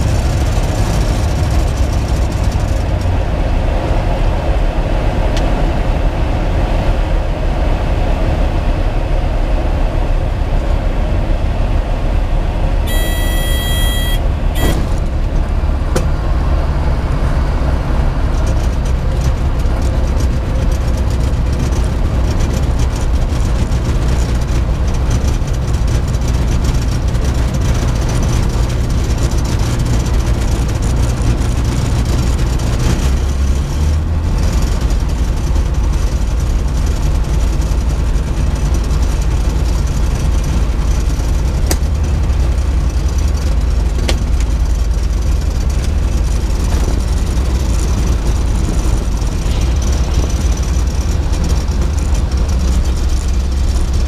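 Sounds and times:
light aircraft engine running: 0.0 - 54.0
high electronic beep: 12.9 - 14.8.

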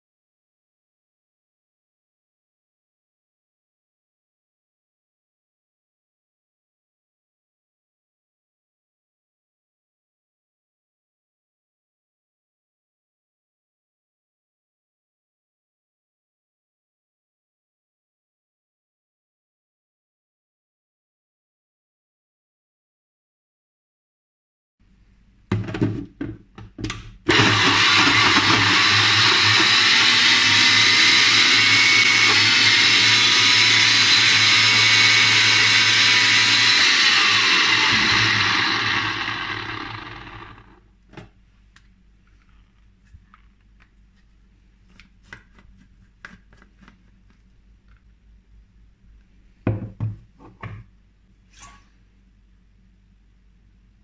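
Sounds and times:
blender motor running: 27.3 - 40.8.

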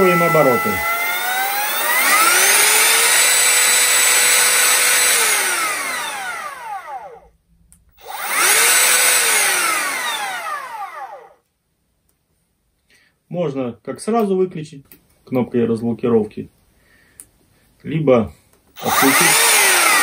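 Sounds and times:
router motor whine: 0.0 - 7.2, 8.0 - 11.4, 18.8 - 20.0.

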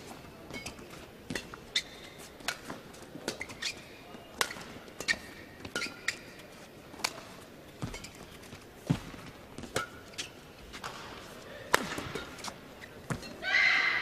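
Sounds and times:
murmur of indoor crowd: 0.0 - 14.0
shoes squeaking on court: 0.0 - 14.0
racket hitting shuttlecock: 0.6 - 6.2, 10.8 - 13.4.

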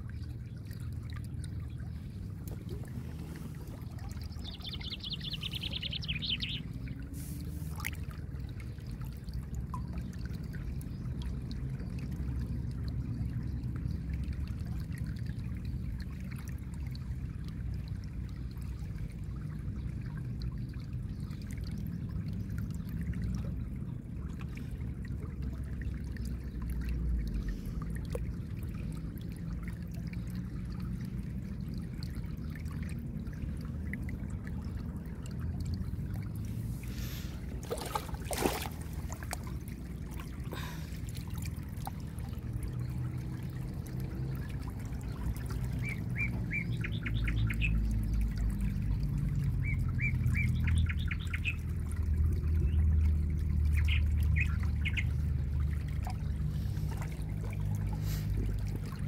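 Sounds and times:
creek water trickling over pebbles: 0.0 - 59.0
bird chirping: 4.3 - 6.7.

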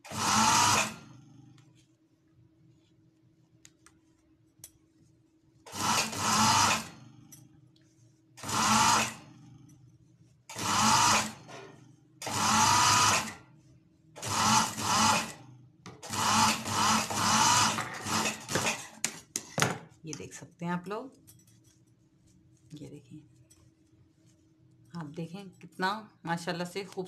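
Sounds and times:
sewing machine stitching: 0.0 - 1.2, 5.7 - 7.0, 8.4 - 9.4, 10.5 - 13.4, 14.2 - 18.9
low steady hum: 1.0 - 5.7, 6.9 - 8.4, 9.2 - 10.5, 19.8 - 27.0.

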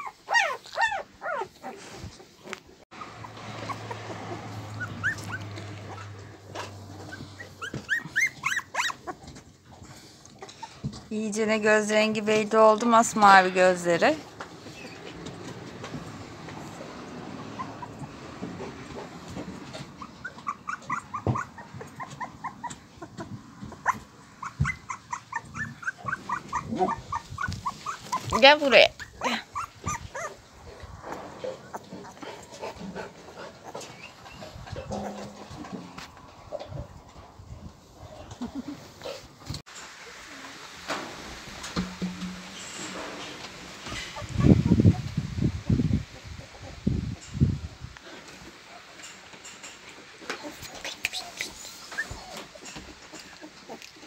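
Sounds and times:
puppy whimpering: 0.0 - 2.2, 3.0 - 9.4, 17.4 - 19.0, 19.7 - 30.4, 50.3 - 54.0
sharp knocks: 41.7 - 43.1.

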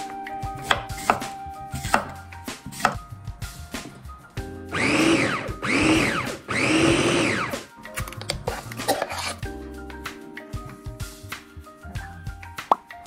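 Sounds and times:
electric food chopper motor: 4.7 - 7.7.

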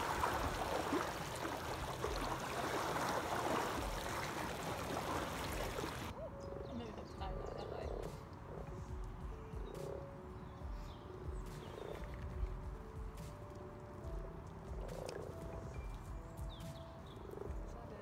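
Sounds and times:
gas bubbling through water: 0.0 - 6.1
frogs croaking: 0.0 - 10.3, 14.1 - 18.0.

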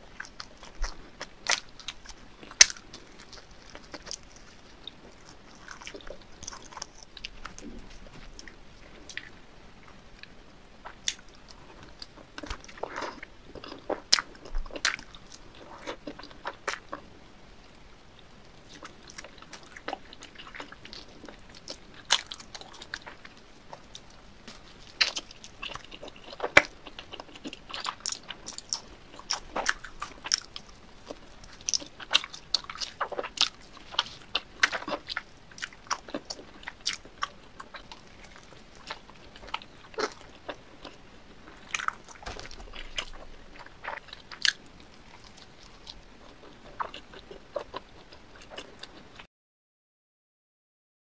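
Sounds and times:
wet sticky chewing: 0.0 - 17.0, 18.5 - 49.2
biting into pizza crust: 41.6 - 47.8.

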